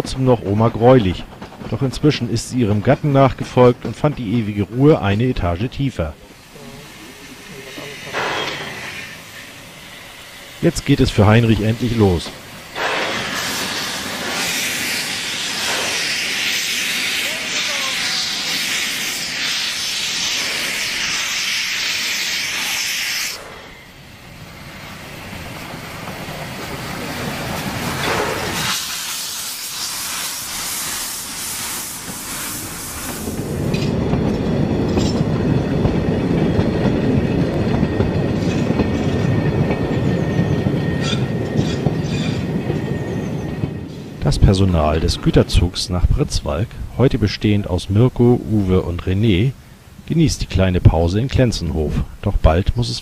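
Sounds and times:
steam locomotive hissing: 0.0s - 53.0s
wagons rumbling over track: 0.0s - 53.0s
faint high wheel squeal: 6.6s - 12.0s, 37.8s - 44.3s.

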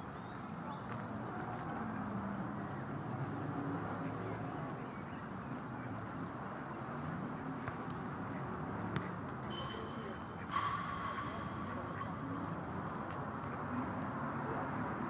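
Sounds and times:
low outdoor background noise: 0.0s - 15.0s
short high-pitched sound: 9.5s - 12.9s.

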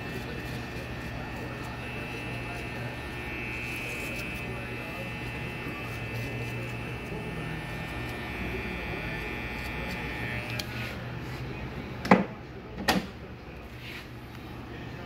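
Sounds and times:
electric hair clipper humming: 0.0s - 10.8s.

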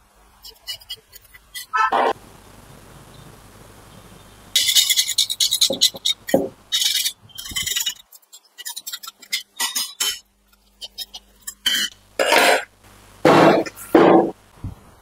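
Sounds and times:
metal parts scraping: 4.6s - 10.2s.

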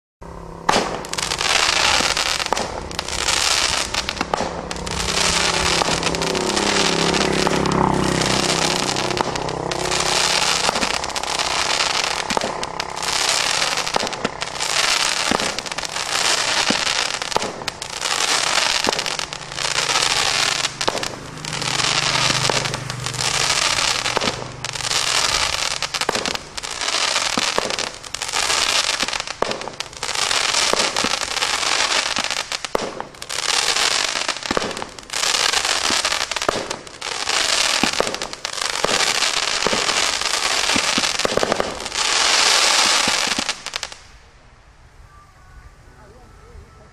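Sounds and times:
firework fizzing and crackling: 0.2s - 46.9s
firework launch thumps: 0.6s - 24.6s, 25.2s - 26.6s, 40.7s - 41.9s.

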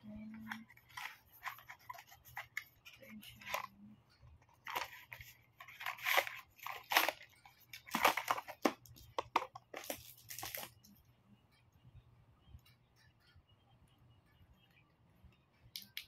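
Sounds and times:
cardboard and plastic crinkling: 0.3s - 3.7s, 4.5s - 10.8s.

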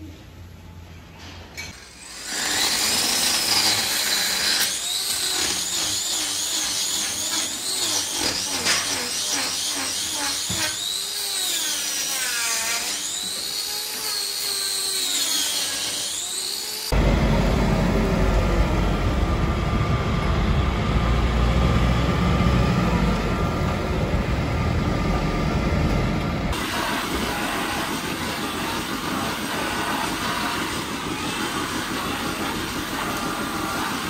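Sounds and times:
angle grinder grinding hoof: 1.6s - 19.5s, 20.1s - 34.0s
heavy engine rumble: 17.0s - 26.5s.

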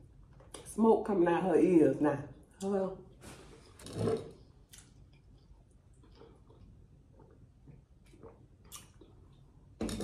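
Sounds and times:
lip smacks: 8.0s - 9.4s.

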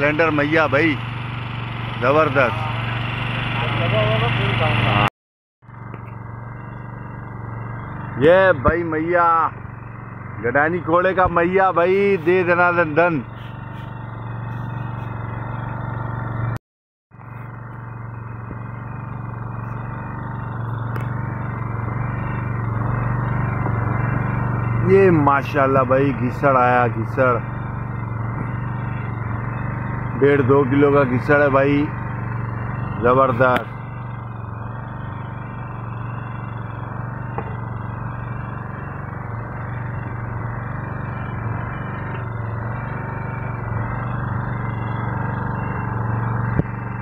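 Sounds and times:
engine running steadily: 0.0s - 47.0s.

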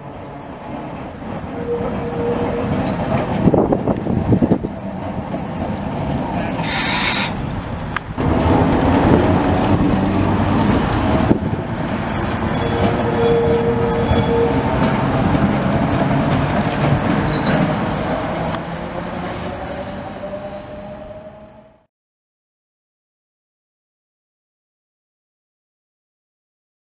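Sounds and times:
tram wheels rumbling over rails: 0.0s - 21.9s
wheel squeal: 3.8s - 7.5s, 12.0s - 15.4s, 16.0s - 18.2s
short hiss: 6.6s - 7.4s.

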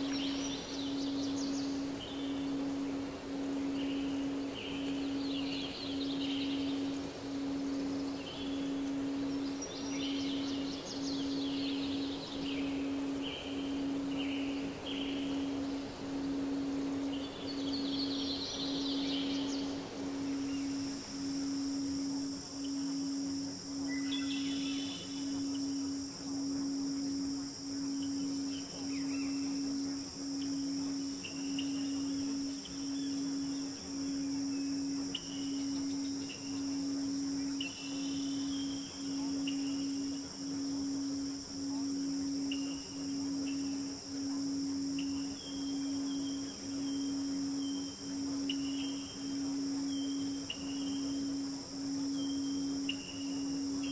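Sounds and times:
cricket chorus: 0.0s - 53.9s
low pulsing tone: 0.0s - 53.9s
soft rushing hiss: 0.0s - 53.9s.

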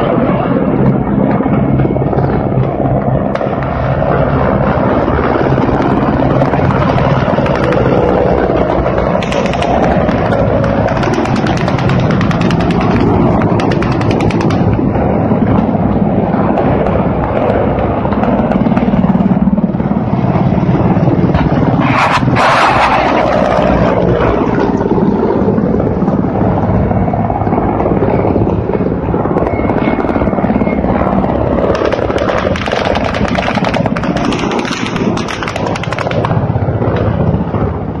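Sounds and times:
helicopter rotor chop: 0.0s - 38.0s
sharp burst: 9.2s - 14.8s.

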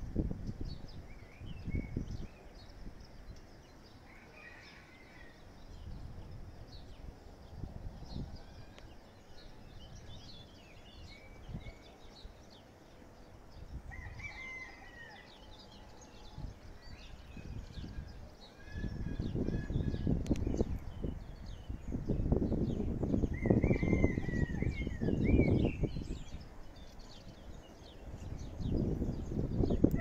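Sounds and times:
rooster crowing: 4.1s - 5.4s, 13.9s - 15.5s, 23.6s - 24.7s
birds chirping: 5.4s - 30.0s.

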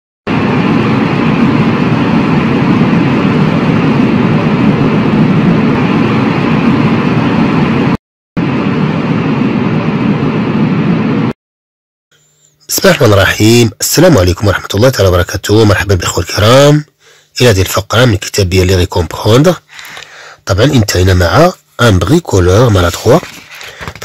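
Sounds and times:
loud rushing noise: 0.3s - 11.4s.

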